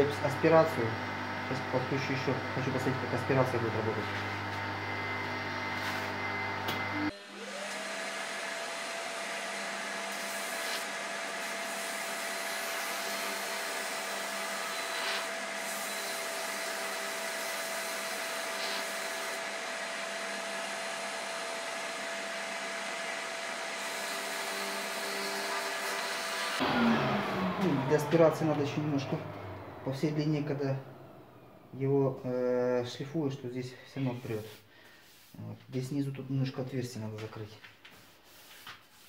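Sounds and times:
vacuum motor whining: 0.0s - 12.6s, 24.6s - 31.9s
drum sander humming: 0.0s - 32.1s.

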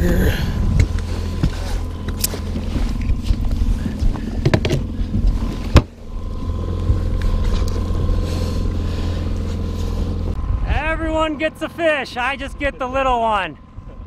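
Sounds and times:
outboard motor running: 0.0s - 14.0s.

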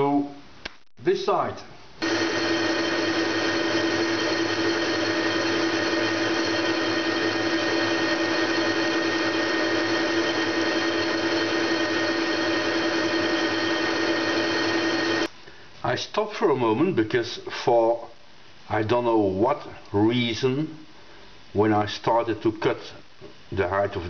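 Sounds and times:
metal lathe whining: 2.0s - 15.3s
tool cutting spinning metal: 2.0s - 15.3s.

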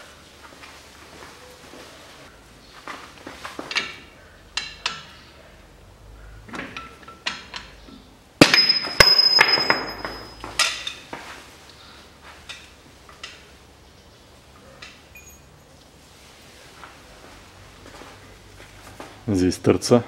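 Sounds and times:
loud metallic clank and ringing: 8.4s - 10.9s.

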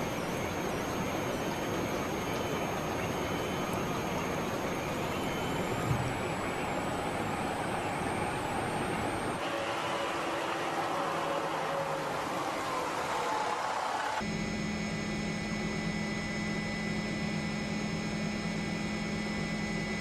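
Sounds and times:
floodwater rushing: 9.4s - 14.2s.

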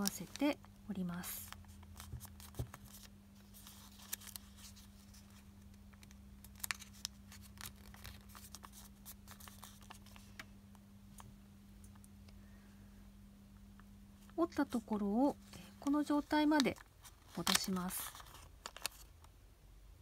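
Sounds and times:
paper crackling while folded: 0.0s - 10.5s, 14.3s - 19.2s.

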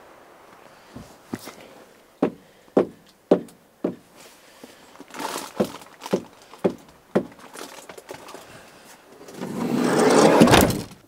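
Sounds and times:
short rustle: 0.5s - 2.0s, 4.0s - 11.0s
boots thudding on van floor: 2.2s - 4.8s, 5.5s - 7.4s.

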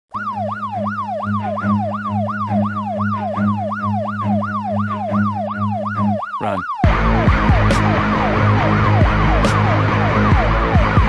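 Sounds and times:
police siren yelping: 0.1s - 11.0s.

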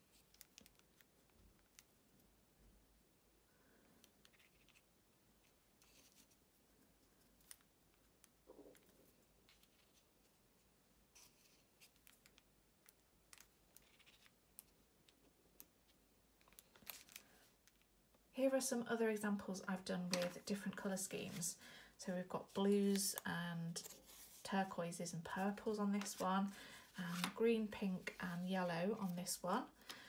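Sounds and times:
paper rustling: 22.4s - 24.5s, 26.9s - 27.4s.

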